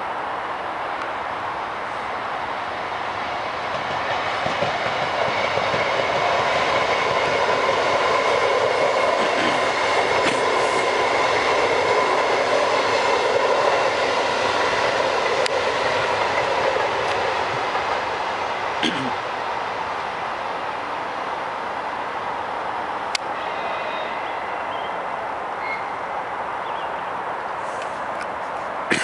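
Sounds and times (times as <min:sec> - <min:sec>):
train wheels rushing on rails: 0:00.1 - 0:29.0
high-pitched train tone: 0:23.3 - 0:26.1.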